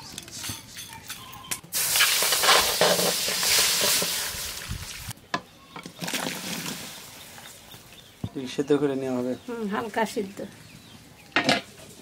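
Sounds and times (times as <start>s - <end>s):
water pouring into a pan: 1.8s - 5.1s.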